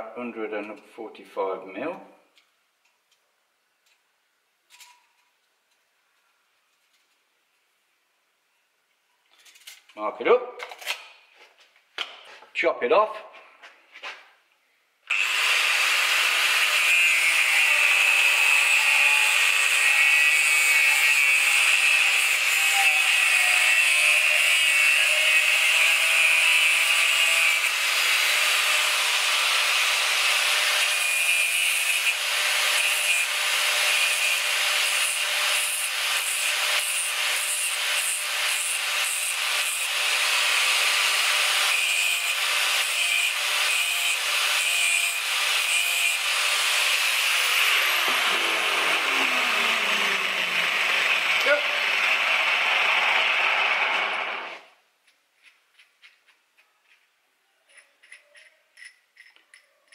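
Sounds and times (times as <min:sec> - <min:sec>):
angle grinder cutting steel: 0:15.1 - 0:54.7.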